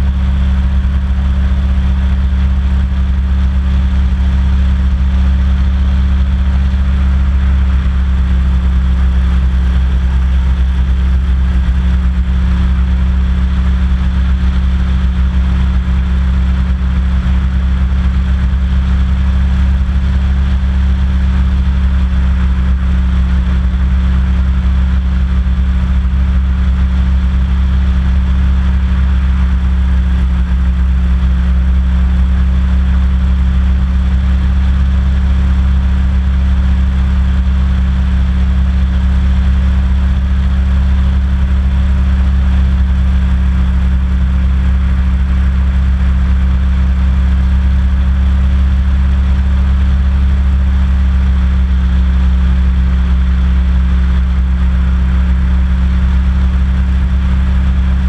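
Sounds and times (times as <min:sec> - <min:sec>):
hovercraft engine drone: 0:00.0 - 0:27.4.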